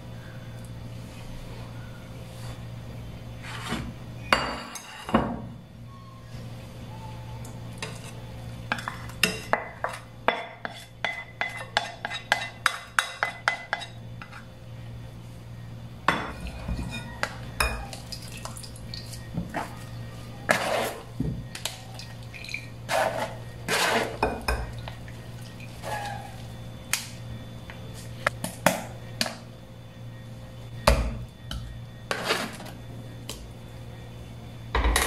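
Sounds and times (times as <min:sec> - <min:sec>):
steady low hum: 0:00.0 - 0:35.0
plastic paddle scraping glass bowl: 0:22.9 - 0:24.2.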